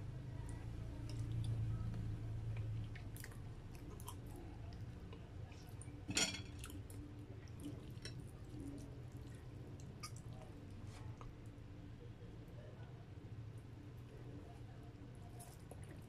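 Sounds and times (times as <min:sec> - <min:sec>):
wet clicks of noodles: 0:00.5 - 0:01.6, 0:06.6 - 0:11.4.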